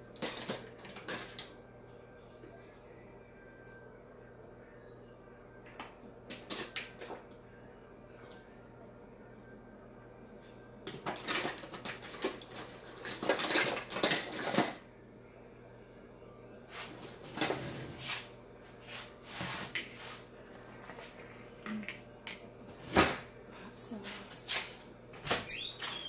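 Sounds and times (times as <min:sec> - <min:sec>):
dishes and utensils clinking: 0:10.9 - 0:14.8.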